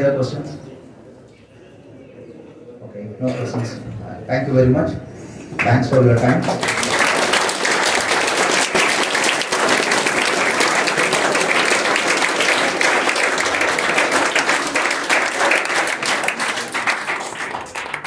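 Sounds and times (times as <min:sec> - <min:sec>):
audience applauding: 0:05.9 - 0:18.0.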